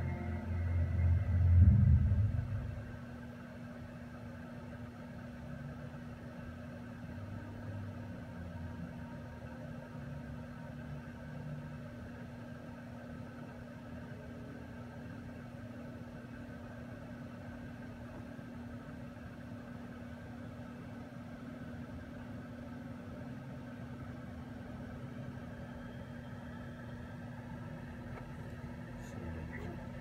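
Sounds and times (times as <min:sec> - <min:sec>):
low machine hum: 0:00.0 - 0:30.0.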